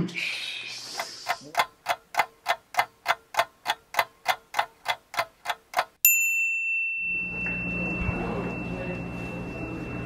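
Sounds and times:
clock ticking: 0:00.9 - 0:06.0.

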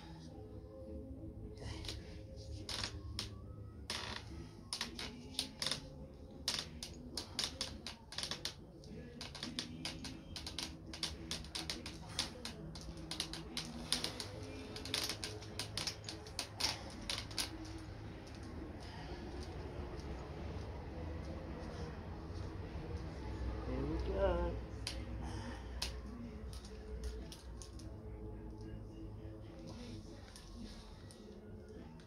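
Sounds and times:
bicycle handlebars clicking and creaking: 0:03.9 - 0:08.6, 0:09.2 - 0:20.2.

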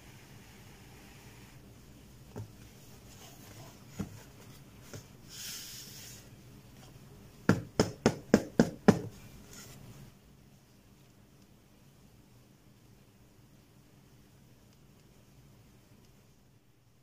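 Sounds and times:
sliding across cardboard box: 0:02.8 - 0:06.4.

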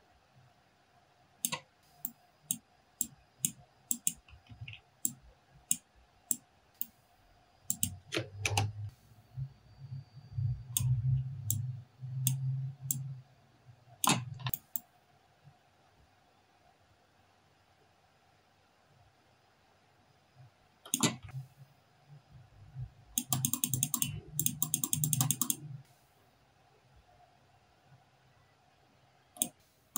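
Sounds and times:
mouse and keyboard clicking: 0:01.4 - 0:07.0, 0:07.7 - 0:08.7, 0:14.0 - 0:14.9, 0:20.9 - 0:21.4, 0:23.2 - 0:25.6.

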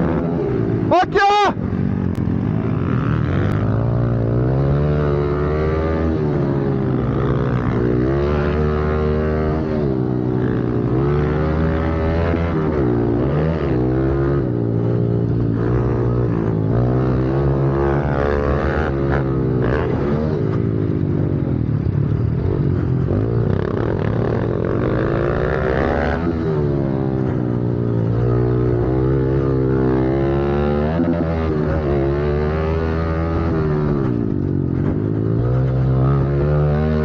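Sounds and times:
dirt bike engine racing: 0:00.0 - 0:37.0.

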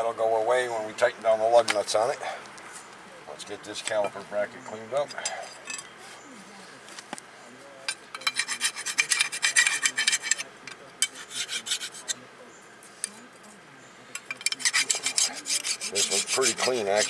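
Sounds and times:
hand file scraping metal: 0:08.2 - 0:12.2, 0:14.2 - 0:17.0.

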